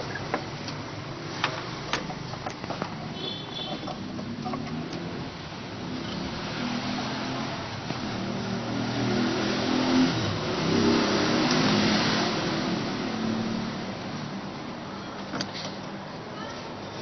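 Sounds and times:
vehicle engine passing by: 0:04.6 - 0:14.1.

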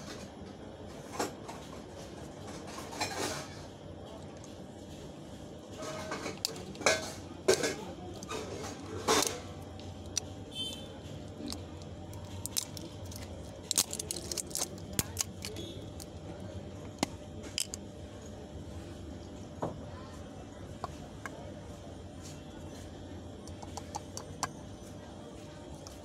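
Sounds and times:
low steady hum: 0:00.9 - 0:26.0
hands handling plastic container: 0:11.4 - 0:16.1.

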